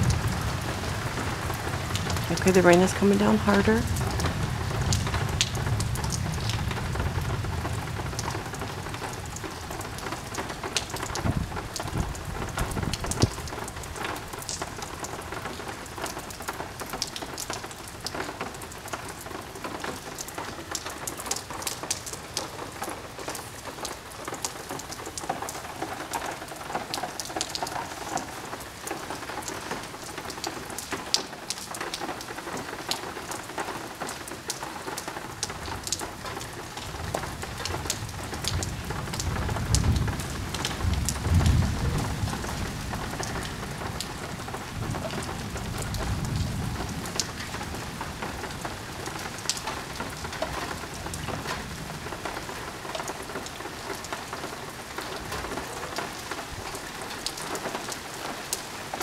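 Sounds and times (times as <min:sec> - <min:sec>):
low rumble of thunder: 0:00.0 - 0:02.9, 0:03.8 - 0:14.3, 0:36.6 - 0:49.4
heavy rain pouring: 0:00.0 - 0:59.0
raindrops striking close by: 0:00.0 - 0:59.0.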